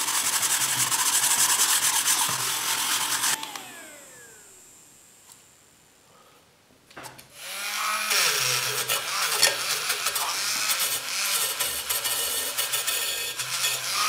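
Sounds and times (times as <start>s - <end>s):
rotary tool wire brush on metal: 0.0s - 3.4s, 7.7s - 14.0s.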